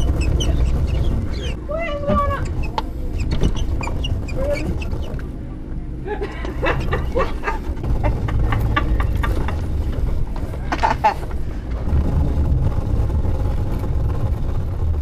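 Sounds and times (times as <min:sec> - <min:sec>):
high squeals: 0:00.0 - 0:05.2
shopping cart rolling: 0:00.0 - 0:05.4, 0:06.6 - 0:15.0.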